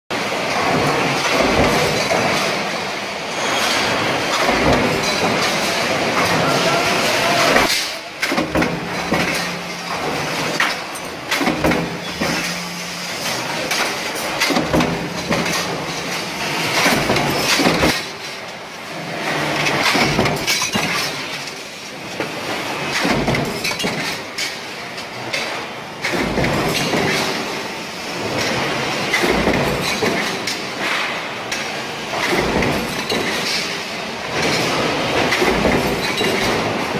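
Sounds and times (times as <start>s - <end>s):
factory clatter: 0.1s - 36.9s
steady machine hum: 0.2s - 20.4s
metal press clanking: 3.5s - 18.6s.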